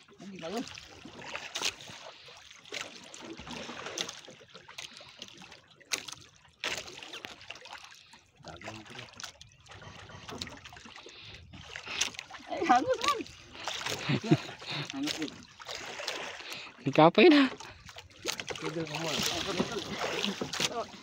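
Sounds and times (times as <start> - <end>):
water splashing against boat hull: 0.0 - 21.0
water slaps: 0.4 - 5.2, 5.9 - 7.9, 11.7 - 21.0.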